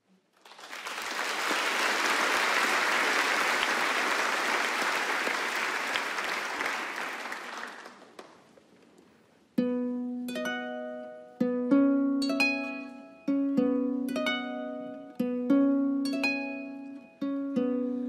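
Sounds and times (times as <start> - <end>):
audience applauding: 0.2 - 8.5.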